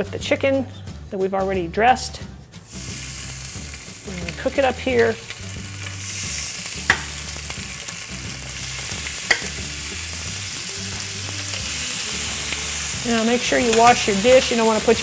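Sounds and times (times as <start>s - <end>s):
chicken sizzling on grill pan: 2.7s - 15.0s
metal tongs clicking: 9.3s - 9.6s.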